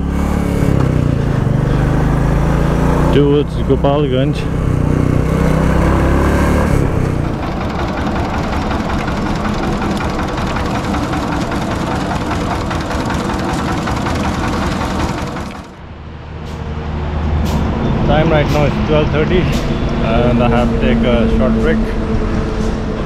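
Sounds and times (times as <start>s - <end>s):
motorcycle engine and wind: 0.0s - 8.6s
sugarcane crusher clattering: 7.2s - 15.8s.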